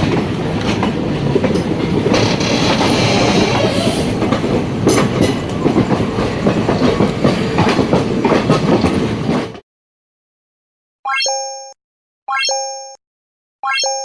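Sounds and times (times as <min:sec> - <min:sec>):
train rumbling along track: 0:00.0 - 0:09.6
wheels clacking over rail joints: 0:00.0 - 0:09.6.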